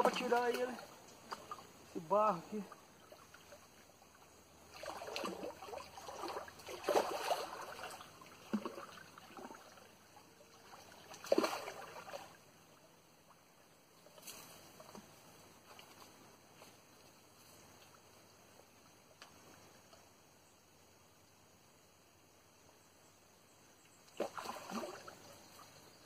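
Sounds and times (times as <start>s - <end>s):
fish thrashing and splashing: 4.7s - 9.8s.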